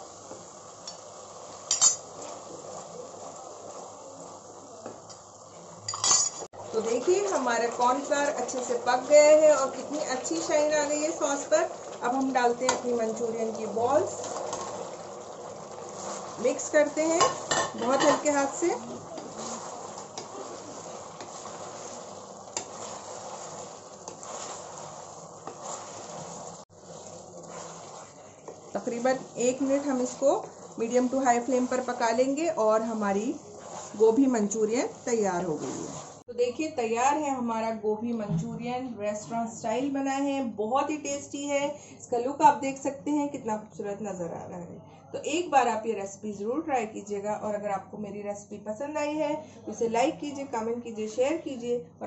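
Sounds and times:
sauce sizzling in a pan: 0.0 - 36.3
wooden spoon stirring: 0.0 - 36.3
spoon scraping pan: 0.2 - 3.9, 5.9 - 36.2.

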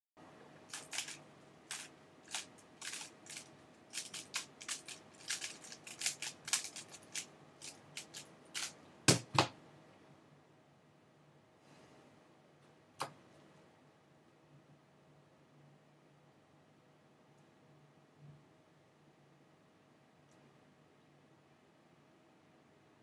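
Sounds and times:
puzzle cube clicking and turning: 0.7 - 9.3.

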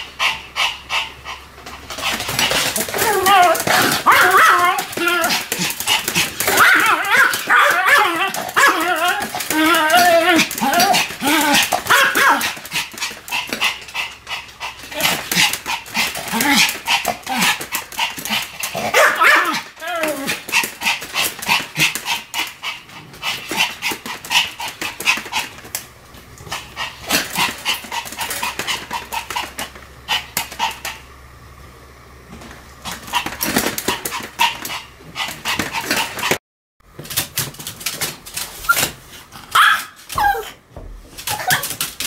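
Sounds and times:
small dog barking and yipping: 2.4 - 12.6, 18.9 - 20.4, 39.5 - 40.5.

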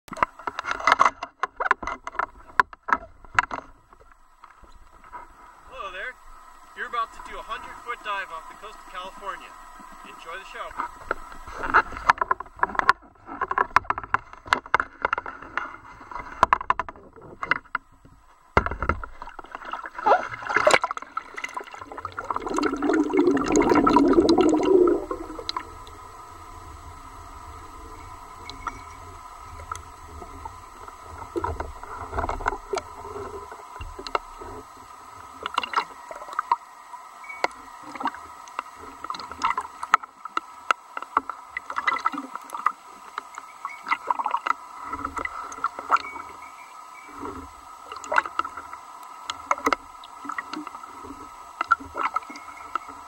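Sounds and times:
faint steady tone: 0.1 - 53.0
low underwater noise: 0.1 - 53.0
water sloshing against camera: 0.1 - 53.0
underwater bubbling rush: 19.0 - 36.6.

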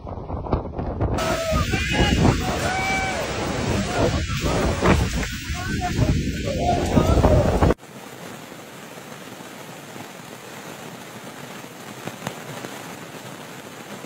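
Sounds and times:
wind buffeting microphone: 0.0 - 7.8
heavy rain on street: 1.1 - 14.0.

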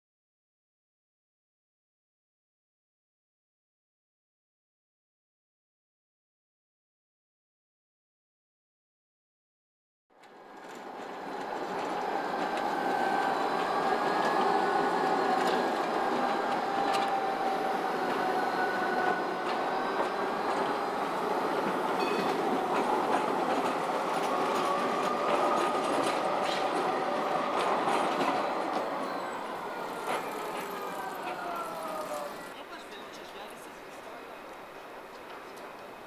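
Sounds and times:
tram wheels on rails: 10.2 - 36.0
tram whining tones: 10.2 - 36.0.

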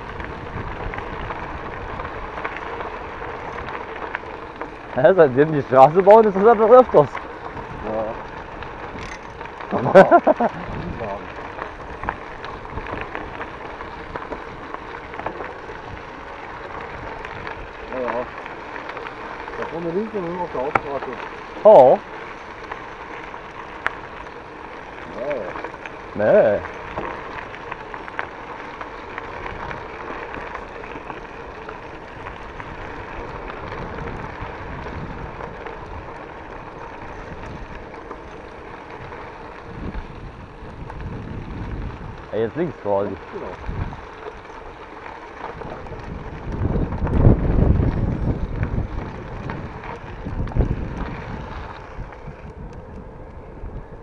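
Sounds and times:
bike tyres crunching on gravel: 0.0 - 54.0
wind buffeting microphone: 0.0 - 54.0.

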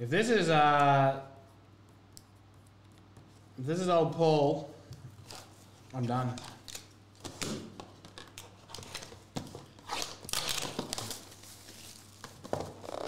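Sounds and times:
packaging tearing and crinkling: 9.8 - 13.0.

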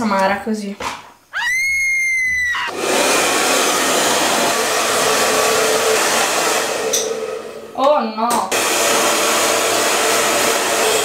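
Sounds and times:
shrill high-pitched squeal: 1.3 - 2.7
hair dryer blowing: 2.5 - 7.8, 8.5 - 11.0.

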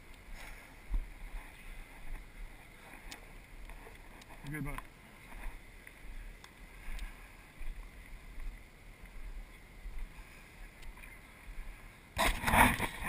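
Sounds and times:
faint ticks: 0.0 - 11.8
faint wind rumble: 0.0 - 13.0
camera rubbing and knocking: 12.2 - 13.0.

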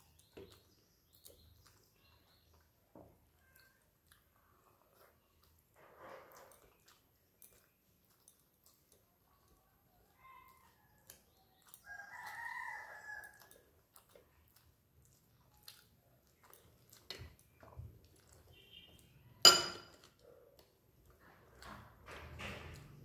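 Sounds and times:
soft clicks of hand mixing rice: 0.0 - 19.3
chewing: 0.0 - 22.0
rooster crowing: 11.9 - 13.4
sharp metallic clink: 19.5 - 20.0.

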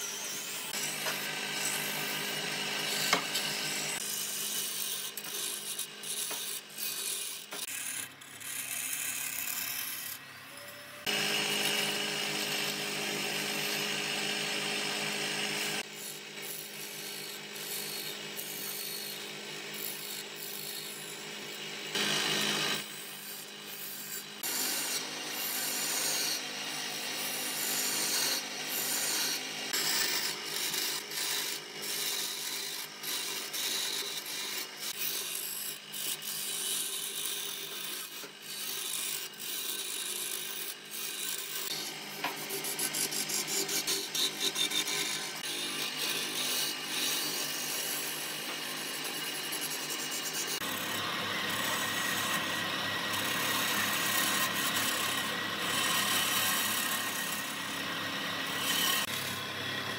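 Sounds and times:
lathe motor humming: 11.0 - 34.9, 41.7 - 59.9
chisel rasping on spinning wood: 27.1 - 59.4.

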